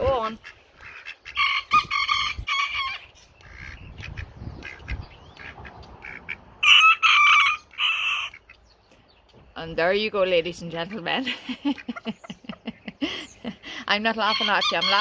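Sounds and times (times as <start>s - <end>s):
rooster crowing: 6.6s - 8.3s.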